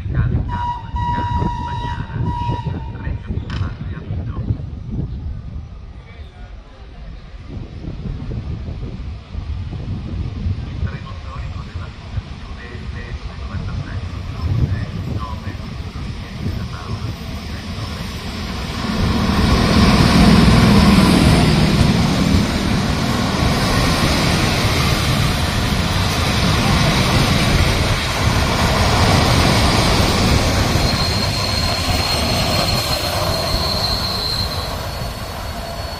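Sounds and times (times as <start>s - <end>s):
train rumbling past: 0.0s - 35.9s
high brake squeal: 30.6s - 35.9s.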